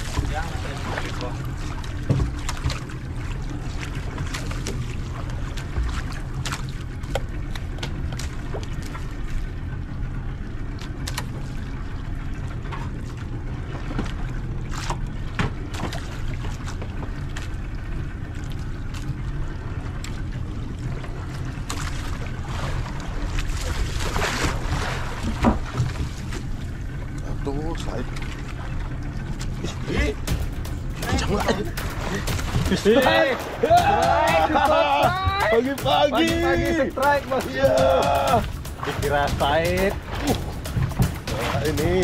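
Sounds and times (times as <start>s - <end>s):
boat engine humming: 0.0s - 42.0s
sharp clicks and knocks: 36.3s - 42.0s.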